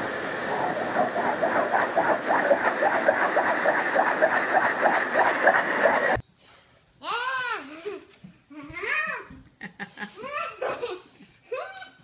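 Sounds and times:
pet grooming dryer blowing: 0:00.0 - 0:06.2.

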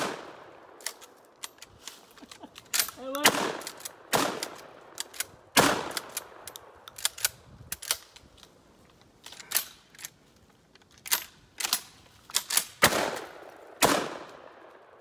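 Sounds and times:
shotgun shots: 0:00.0 - 0:00.5, 0:03.2 - 0:04.7, 0:05.5 - 0:06.4, 0:12.8 - 0:14.6
small clicks and knocks: 0:03.6 - 0:12.7.

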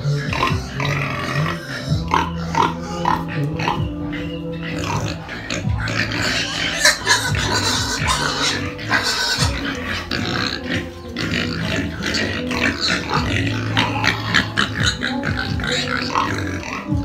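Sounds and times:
music playing: 0:00.0 - 0:17.0
pigs grunting: 0:00.0 - 0:17.0.

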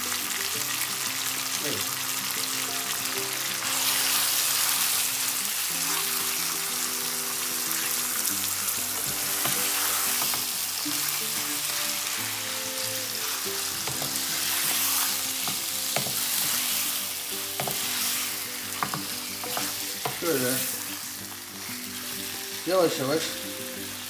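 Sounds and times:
chicken sizzling in hot oil: 0:00.0 - 0:24.0.

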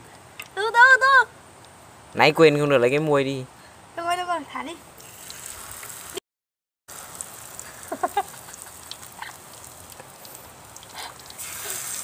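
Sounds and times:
batter sizzling in frying pan: 0:06.9 - 0:12.0.

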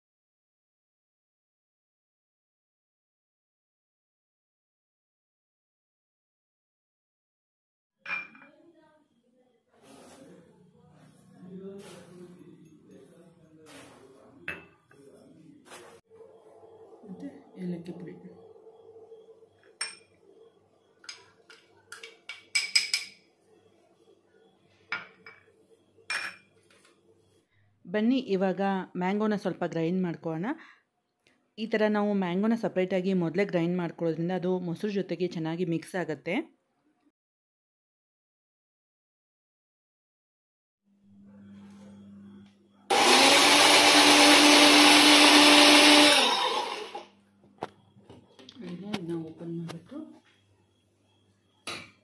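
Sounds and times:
spoon clinking on glass bowl: 0:08.1 - 0:08.5, 0:19.7 - 0:20.2, 0:21.0 - 0:23.2, 0:26.1 - 0:26.5
mixer grinder motor whine: 0:41.4 - 0:47.2.

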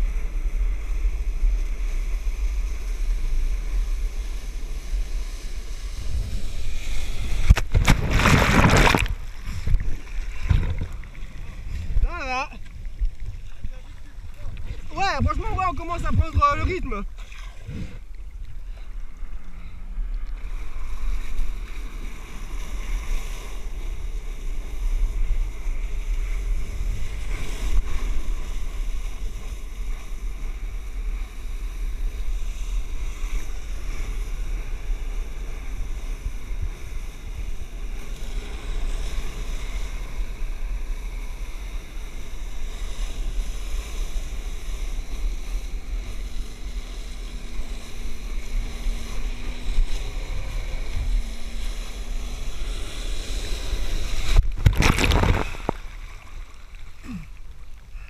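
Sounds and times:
wind buffeting microphone: 0:00.0 - 0:18.6.

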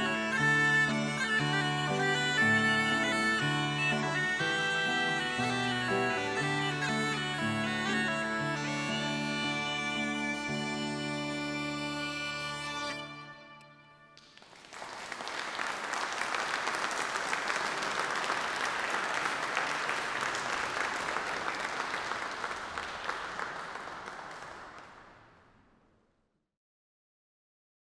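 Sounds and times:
audience applauding: 0:14.2 - 0:25.4.

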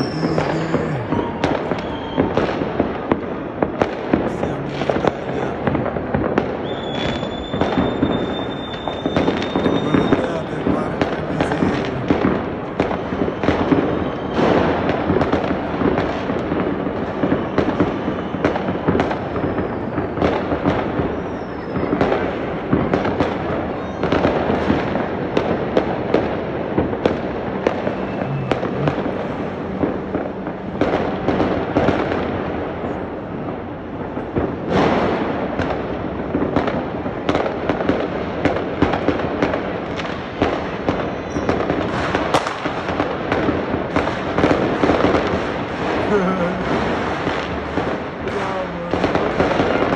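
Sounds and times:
fireworks crackling and banging: 0:00.0 - 0:49.9.

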